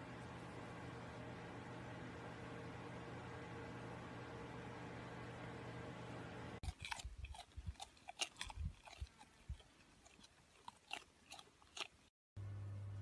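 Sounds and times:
alpaca chewing: 0:06.6 - 0:12.1.

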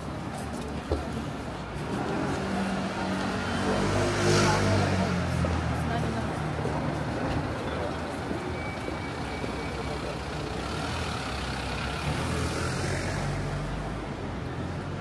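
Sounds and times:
road noise rumble: 0:00.0 - 0:15.0.

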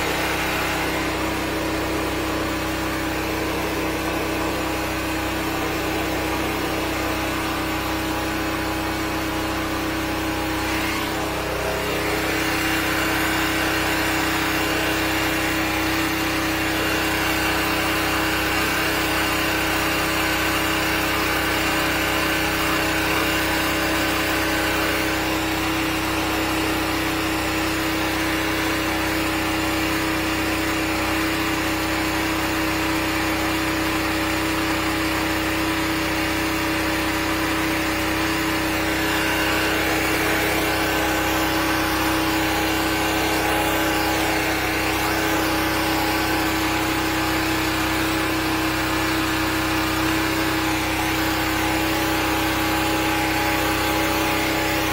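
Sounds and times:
water jet hissing: 0:00.0 - 0:19.2
sewer jetter engine running: 0:00.0 - 0:54.9.

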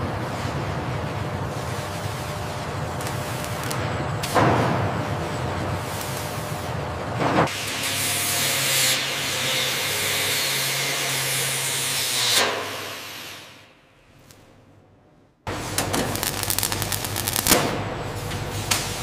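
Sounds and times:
loud hiss: 0:15.8 - 0:17.6.

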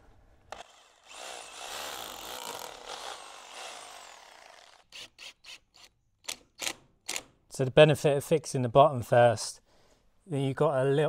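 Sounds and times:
cordless drill whining: 0:00.5 - 0:05.2.

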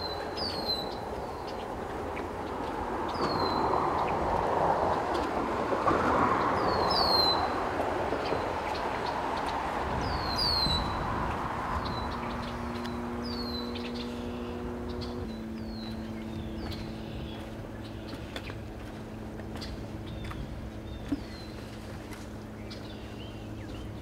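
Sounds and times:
road traffic tyre noise: 0:00.0 - 0:24.0
steady low hum: 0:07.4 - 0:24.0
bird chirping: 0:11.7 - 0:18.6.

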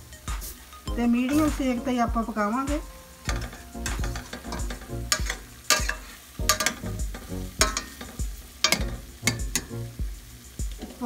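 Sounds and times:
food sizzling: 0:00.0 - 0:11.0
metal spatula scraping a pot: 0:03.2 - 0:09.7.

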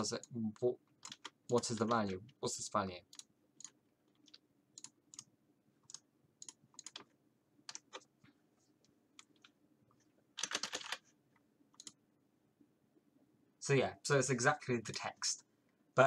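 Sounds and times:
computer keyboard typing: 0:00.0 - 0:02.3, 0:03.1 - 0:08.1, 0:10.4 - 0:11.1, 0:11.8 - 0:12.0.

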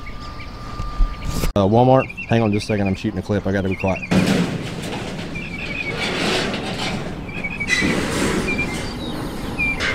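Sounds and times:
bird warbling calls: 0:05.3 - 0:06.2, 0:07.2 - 0:09.9.

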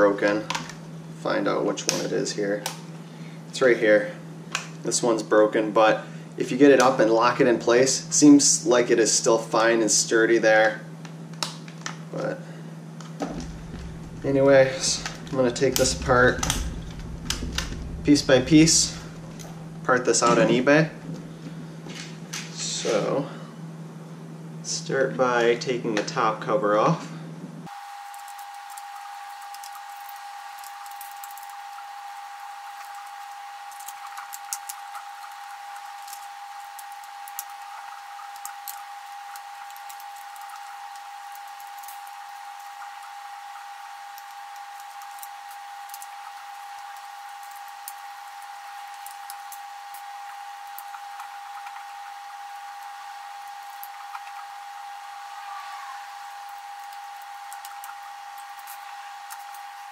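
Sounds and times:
high-pitched whine: 0:13.2 - 0:21.3.

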